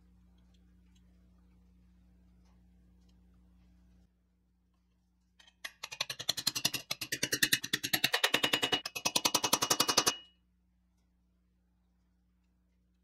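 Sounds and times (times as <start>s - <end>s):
hammer tapping metal punch: 5.4s - 10.3s.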